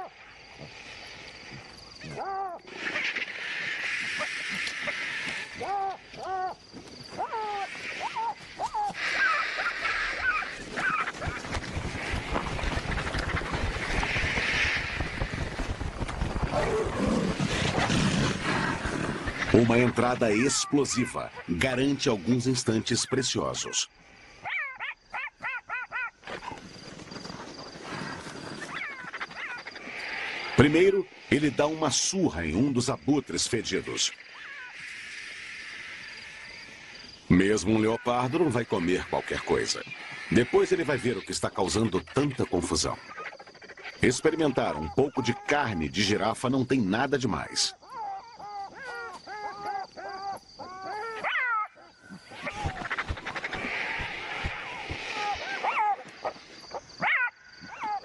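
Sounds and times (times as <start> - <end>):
rustling hiss: 0.0 - 24.5, 26.3 - 47.7, 51.9 - 57.8
animal scramble: 0.0 - 58.0
jackal yelping: 4.1 - 11.4, 24.4 - 26.6, 28.7 - 29.8, 47.8 - 58.0.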